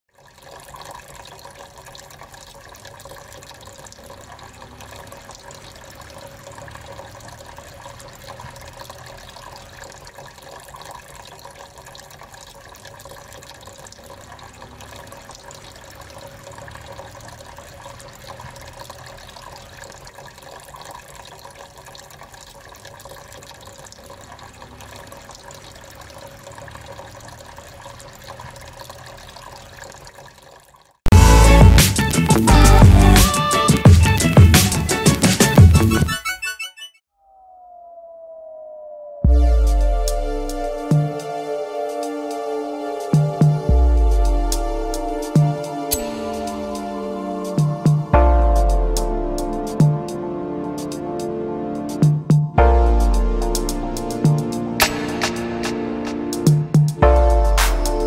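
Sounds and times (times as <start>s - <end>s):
fountain water trickling: 0.1s - 35.7s, 39.3s - 58.0s.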